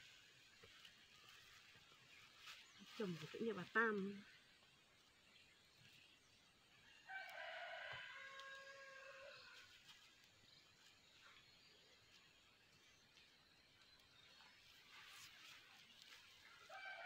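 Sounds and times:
rooster crowing: 0:07.0 - 0:09.7, 0:16.5 - 0:17.0.

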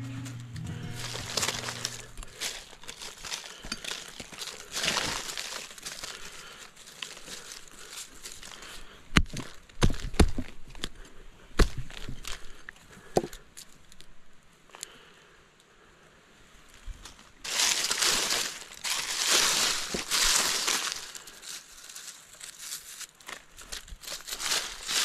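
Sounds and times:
dry leaves rustling: 0:00.3 - 0:10.0, 0:17.1 - 0:25.0.

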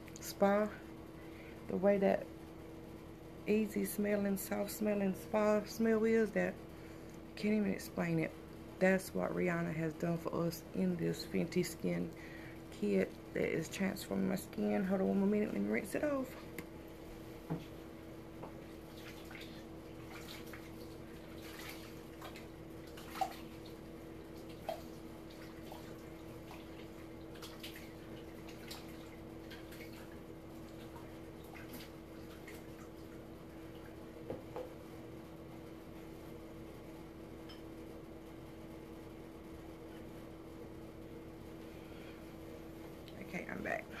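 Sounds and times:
steady hum: 0:00.0 - 0:44.0
water splashes and drips: 0:18.9 - 0:34.0.

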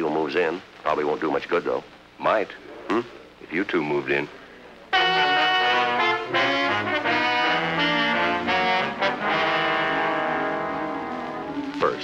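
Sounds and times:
brass orchestral chords: 0:04.9 - 0:12.0.

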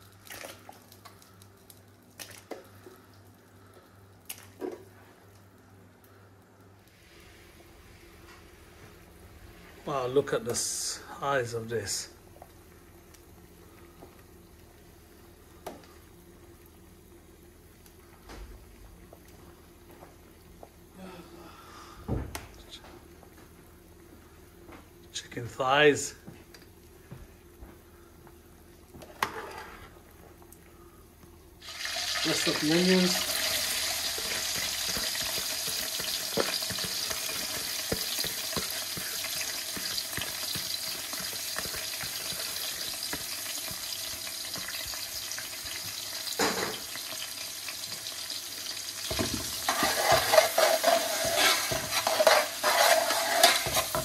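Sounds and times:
food splashing into boiling liquid: 0:00.0 - 0:03.2, 0:04.2 - 0:04.9, 0:31.6 - 0:54.0
stock simmering in a pot: 0:00.0 - 0:11.1, 0:11.8 - 0:21.8, 0:26.5 - 0:54.0
metal ladle stirring: 0:49.7 - 0:54.0.

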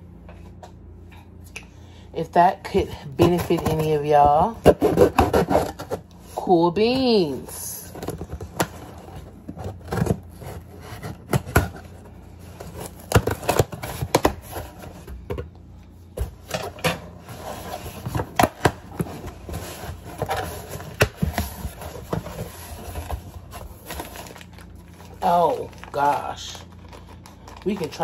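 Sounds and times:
hands working at cardboard box: 0:03.1 - 0:15.4, 0:16.2 - 0:27.0
packaging rustling: 0:07.8 - 0:15.2, 0:16.2 - 0:28.0.

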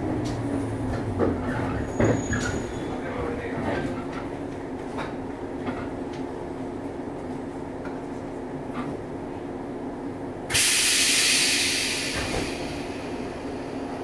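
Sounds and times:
electric train equipment humming: 0:04.1 - 0:14.0
compressed air hissing: 0:10.5 - 0:13.4.

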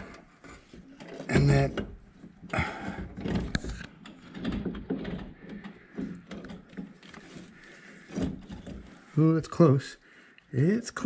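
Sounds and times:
metal knocks and scrapes: 0:02.7 - 0:09.1.

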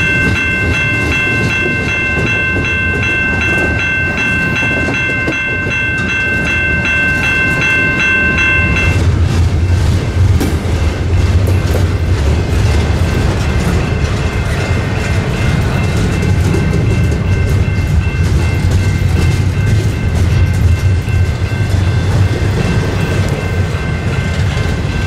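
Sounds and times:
metallic ringing: 0:00.0 - 0:09.0
freight train rumbling on rails: 0:00.0 - 0:25.0.

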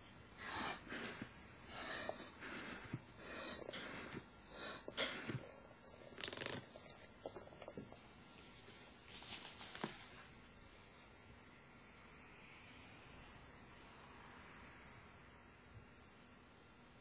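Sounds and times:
resuscitator bag being squeezed: 0:06.1 - 0:06.9.

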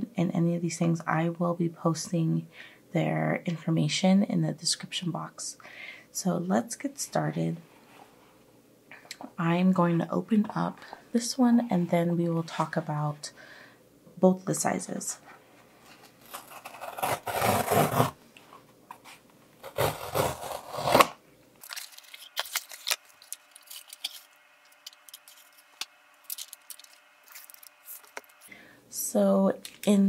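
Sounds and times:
cardboard envelope ripping: 0:15.9 - 0:18.2, 0:19.6 - 0:28.4
plastic crinkling and rustling: 0:21.6 - 0:28.4.

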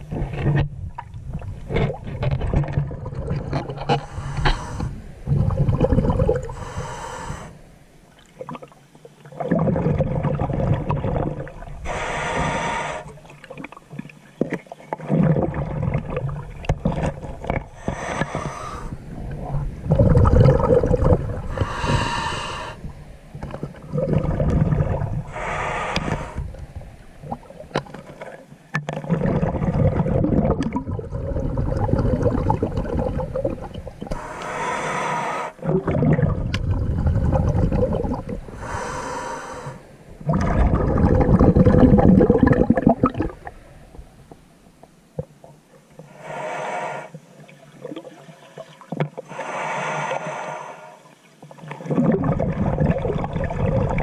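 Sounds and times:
bubbling: 0:00.0 - 0:07.5, 0:08.2 - 0:43.6, 0:51.5 - 0:54.0
diver breathing underwater: 0:03.9 - 0:07.6, 0:11.8 - 0:13.2, 0:17.6 - 0:19.1, 0:19.9 - 0:23.0, 0:24.1 - 0:26.6, 0:34.1 - 0:36.0, 0:36.6 - 0:43.6, 0:46.1 - 0:47.2, 0:49.2 - 0:51.2.

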